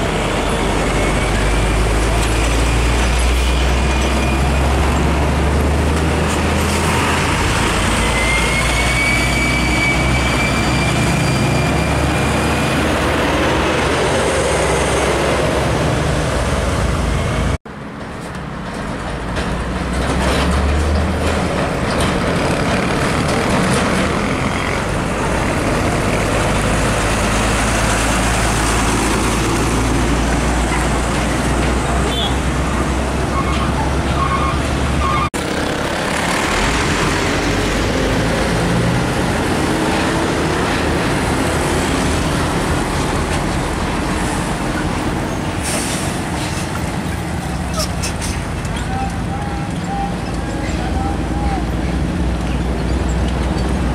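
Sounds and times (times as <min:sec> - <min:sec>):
diesel truck engine rumble: 0:00.0 - 0:53.9
road and tyre noise: 0:00.0 - 0:53.9.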